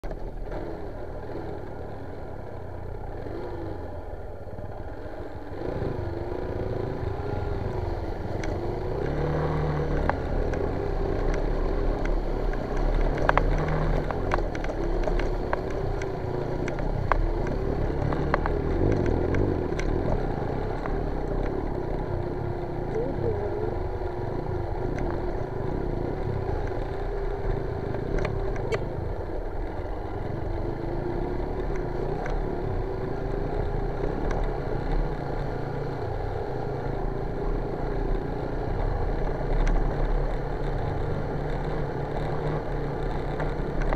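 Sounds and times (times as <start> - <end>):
motorcycle engine revving: 0.3 - 43.9
clicks and rattles from bumps: 11.2 - 21.6.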